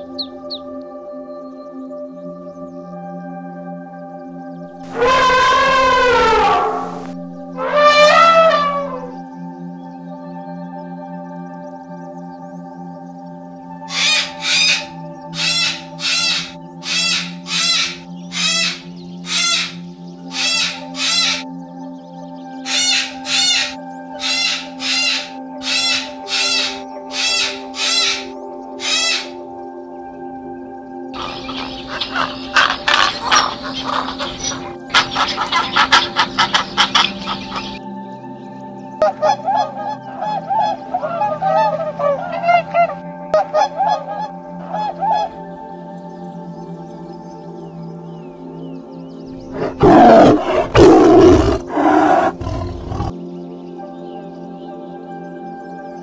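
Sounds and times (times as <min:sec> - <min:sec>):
cockatoo screeching calls: 0:04.8 - 0:09.2, 0:13.9 - 0:21.4, 0:22.6 - 0:29.4, 0:31.2 - 0:37.8, 0:49.4 - 0:53.1
waterfowl honking: 0:04.8 - 0:09.2, 0:13.9 - 0:21.4, 0:22.7 - 0:29.4, 0:31.2 - 0:37.8, 0:39.0 - 0:45.4.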